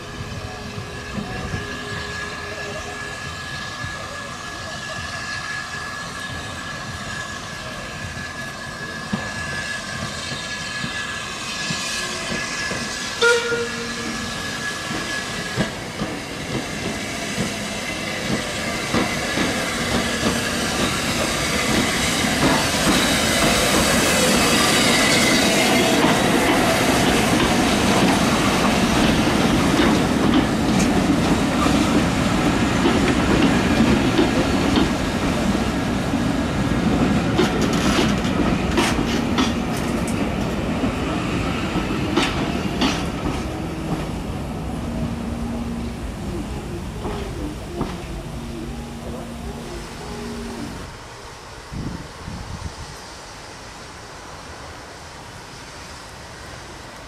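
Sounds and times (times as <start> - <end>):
steam locomotive hissing and chuffing: 0.0 - 57.0
coach wheels clattering over rail joints: 6.2 - 50.9.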